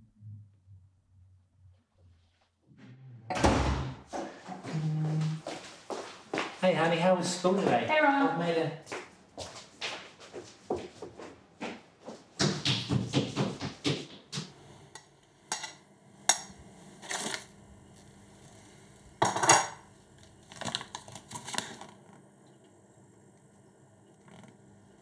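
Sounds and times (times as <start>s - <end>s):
plastic wrapping crinkling: 20.3s - 21.9s.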